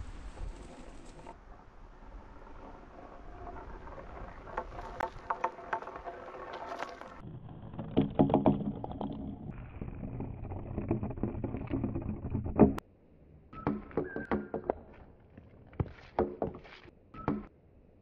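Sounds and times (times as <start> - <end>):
balls rolling on wooden track: 0.0 - 12.8
balls knocking and clacking: 2.3 - 12.8, 13.6 - 15.0, 15.8 - 17.5.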